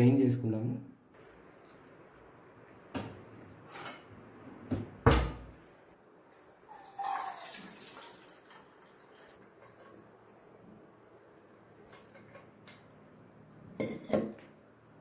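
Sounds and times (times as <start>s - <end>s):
water pouring into a strainer: 6.5s - 9.4s.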